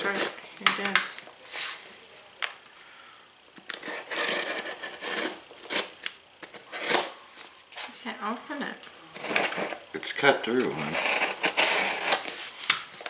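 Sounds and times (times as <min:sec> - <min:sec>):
knife scraping through tape: 0:03.7 - 0:07.1, 0:09.2 - 0:09.8, 0:10.7 - 0:12.4.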